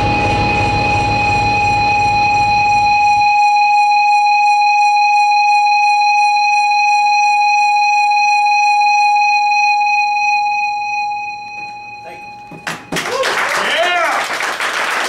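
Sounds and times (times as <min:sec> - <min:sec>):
low rumbling noise: 0:00.0 - 0:03.3
high-pitched electronic whine: 0:00.0 - 0:07.1.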